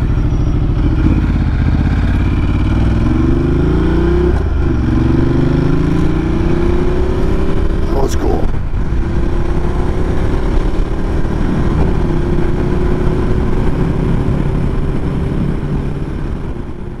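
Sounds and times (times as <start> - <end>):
motorcycle engine running: 0.0 - 3.6.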